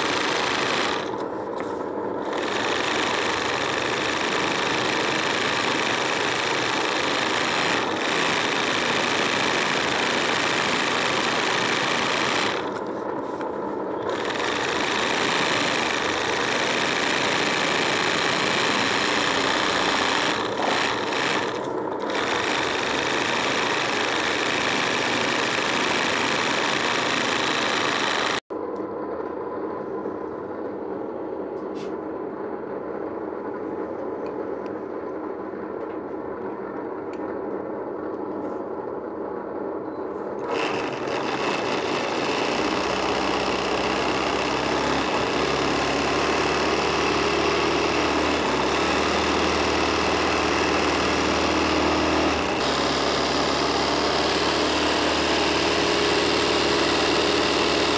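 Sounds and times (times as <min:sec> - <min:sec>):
sewing machine running: 0:00.0 - 0:01.3, 0:02.1 - 0:12.9, 0:14.0 - 0:28.4, 0:40.4 - 0:57.9.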